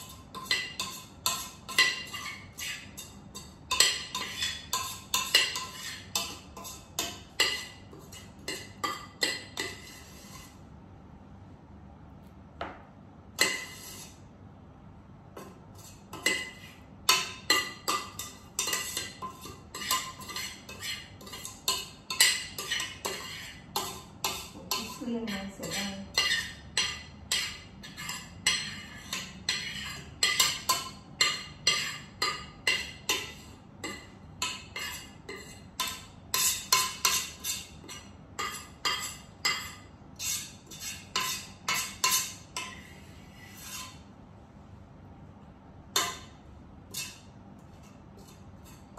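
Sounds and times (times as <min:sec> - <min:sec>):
metal mixing bowl clinking: 0:00.0 - 0:10.1, 0:15.8 - 0:42.9.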